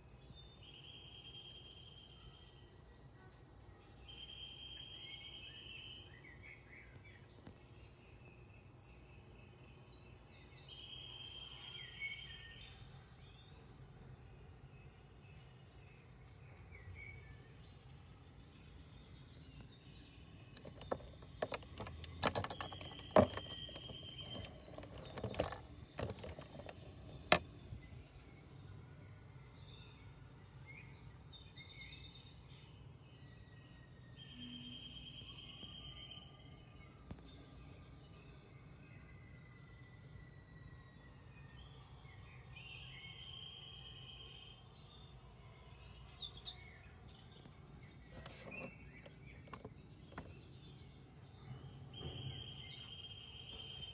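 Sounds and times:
birds chirping and trilling: 3.8 - 53.9
plastic toy parts clicking: 20.6 - 27.4.

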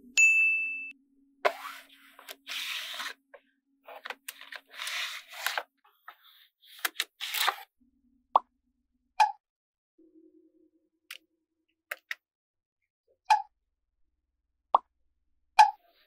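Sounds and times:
card scraping on magnetic balls: 1.5 - 3.2, 3.9 - 5.7, 6.7 - 7.7.

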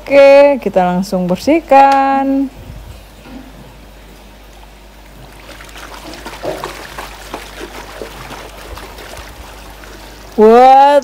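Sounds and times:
water splashing in plastic tub: 5.0 - 10.5.

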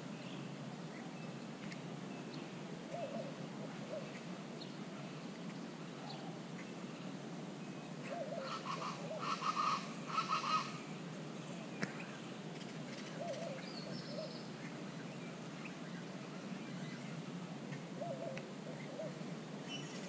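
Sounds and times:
doves cooing: 2.9 - 4.2, 8.0 - 10.8, 13.1 - 14.5, 17.9 - 19.4
birds calling in harsh chorus: 7.9 - 11.0, 11.8 - 17.2.

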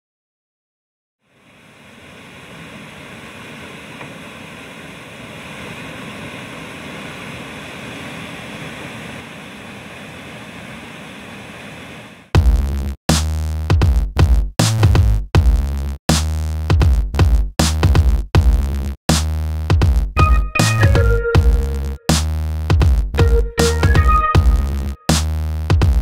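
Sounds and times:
electronic music with drum beat: 12.4 - 26.0.

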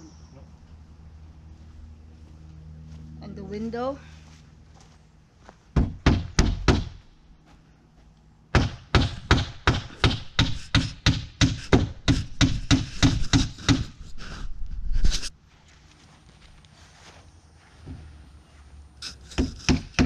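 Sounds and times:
hammer driving nails into wood: 8.5 - 14.0, 19.3 - 20.0.

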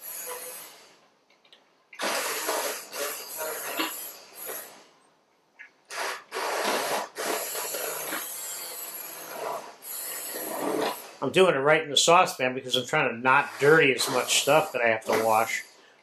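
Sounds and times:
immersion blender pureeing: 2.0 - 4.6, 5.9 - 11.2, 13.3 - 15.7.

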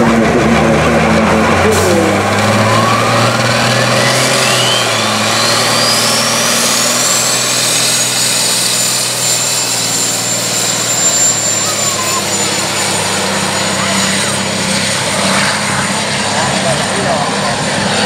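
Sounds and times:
diesel engine under load: 0.0 - 18.0
high climbing whistle: 2.3 - 13.0.

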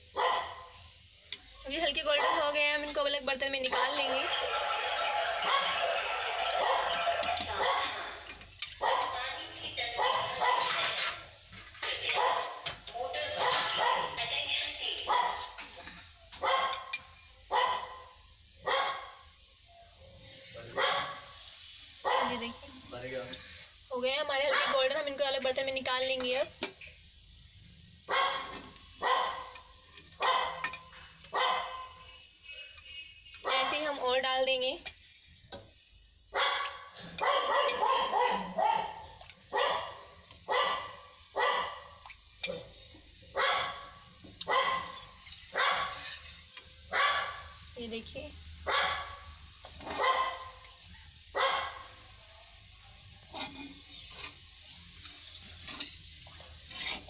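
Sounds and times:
dog barking: 0.1 - 0.7, 2.2 - 2.5, 5.4 - 5.9, 6.6 - 8.2, 8.8 - 9.2, 10.0 - 10.8, 12.1 - 12.6, 13.4 - 14.2, 15.0 - 15.6, 16.4 - 19.2, 20.0 - 21.3, 22.0 - 22.5, 24.5 - 24.9, 28.1 - 29.6, 30.2 - 32.0, 33.4 - 33.8, 36.3 - 42.0, 43.3 - 46.0, 46.9 - 47.6, 48.6 - 50.6, 51.3 - 52.0.

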